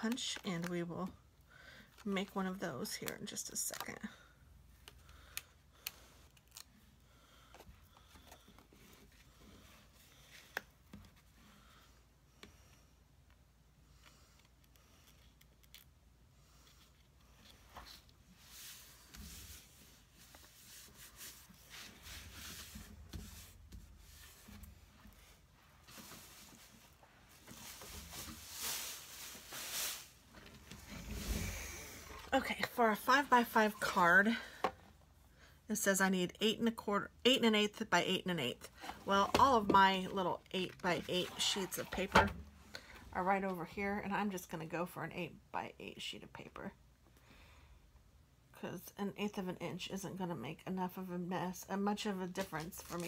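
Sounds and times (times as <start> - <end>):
craft tools rustling and sliding: 16.5 - 32.3.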